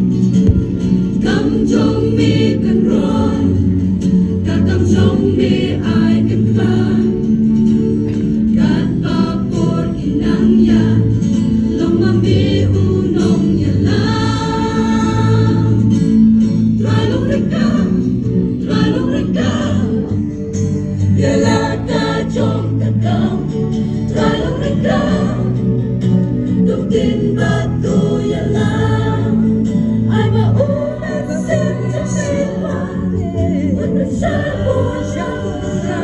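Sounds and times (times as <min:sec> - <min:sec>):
choir singing a hymn: 0:00.4 - 0:36.0.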